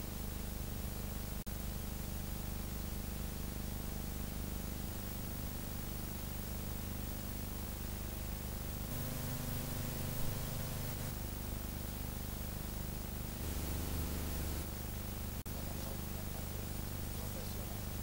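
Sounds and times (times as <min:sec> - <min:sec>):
film soundtrack hiss: 0:01.1 - 0:18.0
low hum: 0:08.9 - 0:11.6, 0:13.2 - 0:15.4.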